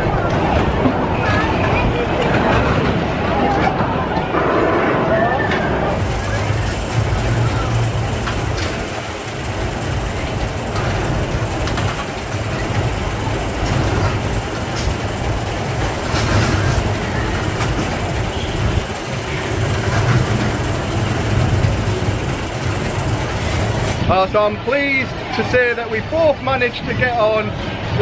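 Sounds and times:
roller coaster cars rumbling: 0:00.0 - 0:28.0
clacks over rails: 0:06.0 - 0:24.1.

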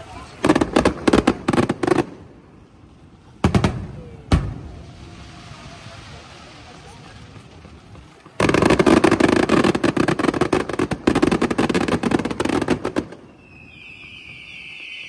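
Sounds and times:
rapid firework bangs: 0:03.4 - 0:04.6, 0:08.4 - 0:13.2
whistling firework: 0:03.4 - 0:07.5, 0:08.4 - 0:15.0.

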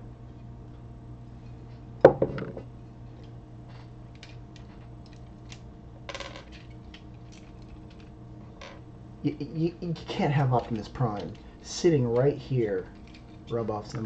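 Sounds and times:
glass bottle knocking on table: 0:02.1 - 0:02.6.

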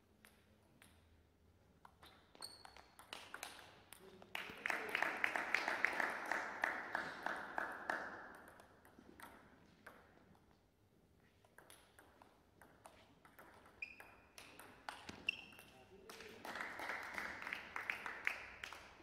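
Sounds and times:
table tennis ball bouncing: 0:01.8 - 0:03.8, 0:08.1 - 0:10.5, 0:11.4 - 0:15.8
rubber soles squeaking on floor: 0:02.0 - 0:03.0, 0:13.0 - 0:15.8
table tennis ball hit by bats: 0:11.5 - 0:15.7.

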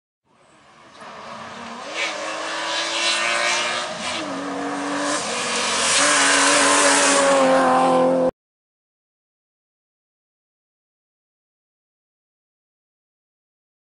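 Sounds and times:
rally car passing at speed: 0:00.4 - 0:08.3.

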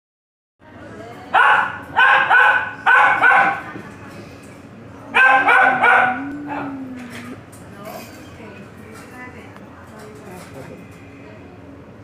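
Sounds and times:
puppy yipping: 0:05.2 - 0:06.7.

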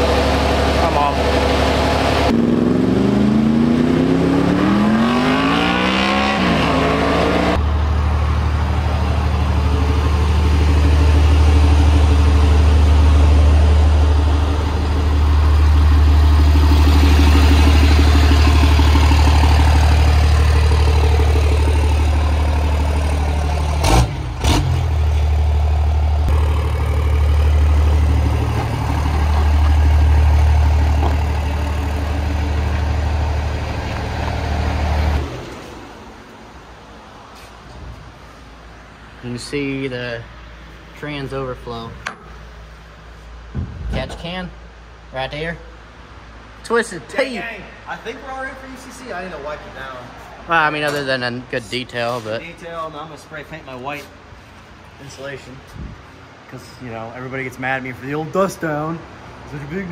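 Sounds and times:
diesel truck engine at low revs: 0:00.0 - 0:37.2
sharp knocks: 0:43.5 - 0:44.2.

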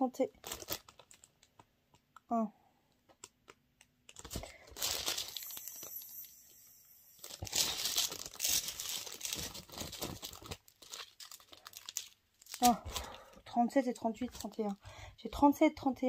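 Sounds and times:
plastic sachets crinkling: 0:00.3 - 0:02.1, 0:03.1 - 0:14.9.

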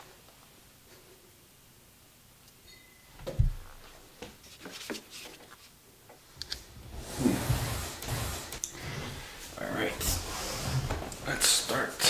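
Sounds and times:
rustling rubbing noise: 0:03.8 - 0:05.8, 0:06.6 - 0:12.0.

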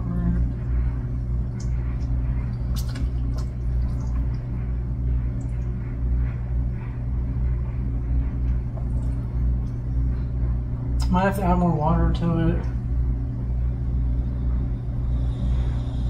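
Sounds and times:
water boiling: 0:00.0 - 0:04.6
steady low hum: 0:00.0 - 0:16.0.

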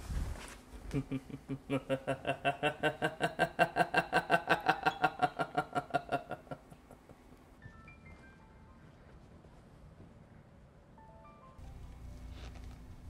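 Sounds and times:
man laughing: 0:00.9 - 0:07.4.

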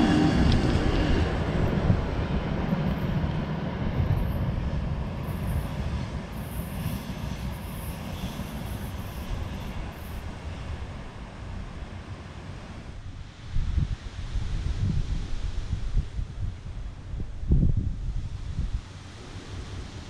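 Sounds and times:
electric train motor whine: 0:00.0 - 0:03.4
train rolling on track: 0:00.0 - 0:13.0.

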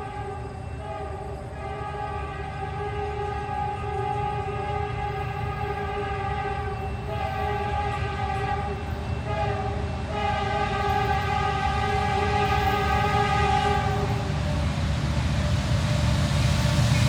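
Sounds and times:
locomotive air horn chord: 0:00.0 - 0:14.8
low train rumble: 0:00.0 - 0:17.0.

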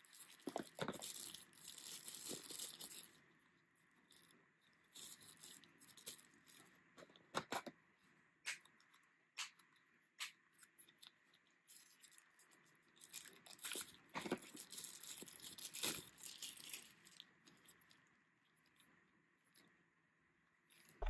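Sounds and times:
plastic wrapper crinkling: 0:00.0 - 0:03.2, 0:04.9 - 0:06.8, 0:11.7 - 0:18.0.

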